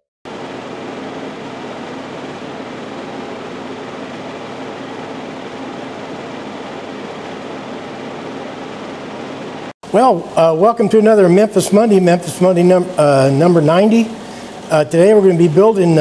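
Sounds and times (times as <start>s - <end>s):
low machine hum: 0.3s - 16.0s.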